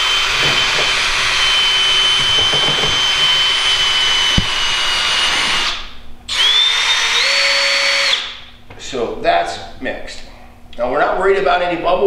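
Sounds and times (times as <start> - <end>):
cordless drill motor whine: 0.0 - 8.4
knock: 2.1 - 3.7, 4.3 - 4.8.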